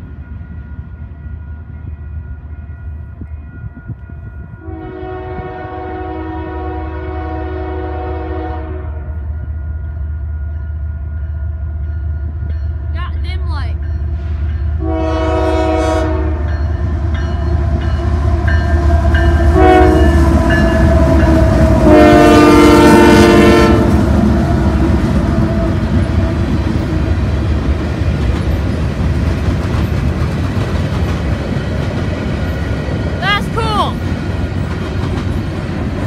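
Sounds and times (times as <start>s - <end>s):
locomotive air horn: 4.6s - 9.1s, 14.8s - 16.5s, 19.5s - 24.0s
train wheels clacking on rail: 25.1s - 33.1s, 34.0s - 36.0s.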